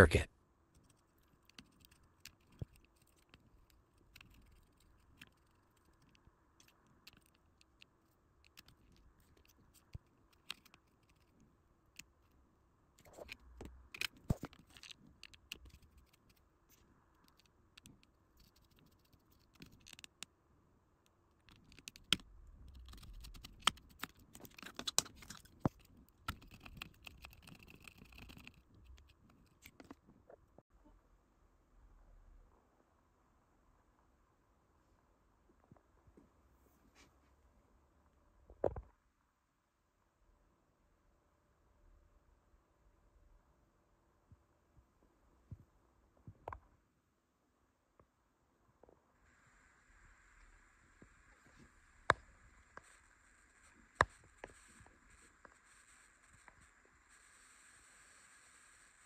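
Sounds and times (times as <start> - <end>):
faint steady hum: 0.0 - 59.0
clicks taps and scrapes: 0.8 - 12.4, 13.0 - 20.3, 21.4 - 30.6.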